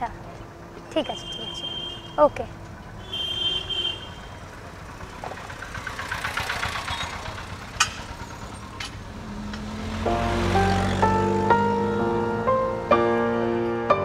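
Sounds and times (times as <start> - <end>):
electric rickshaw rumble: 0.0 - 14.0
background music: 9.6 - 14.0.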